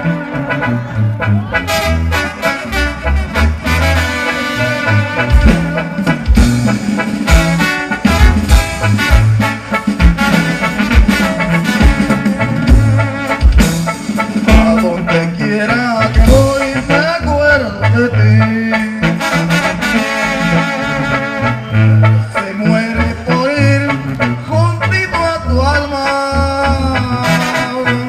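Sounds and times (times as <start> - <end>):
brass band music: 0.0 - 28.0
man singing: 14.3 - 19.6, 21.8 - 28.0.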